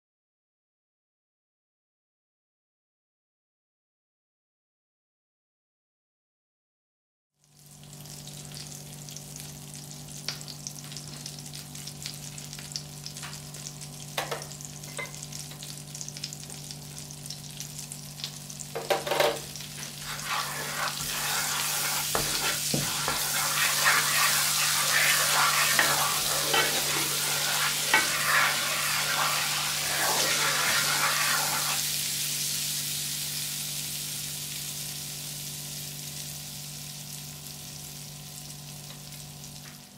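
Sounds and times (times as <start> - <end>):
butter sizzling in a pan: 7.4 - 39.9
wooden spatula scraping a pan: 19.2 - 31.9.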